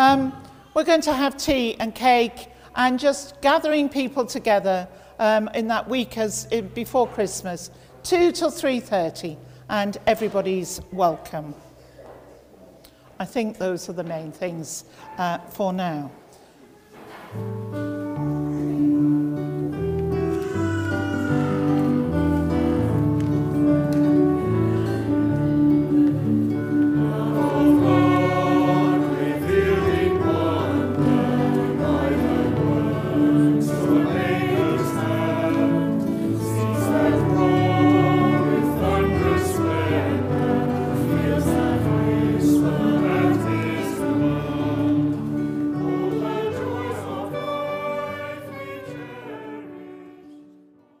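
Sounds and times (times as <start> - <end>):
choir singing: 20.2 - 51.0.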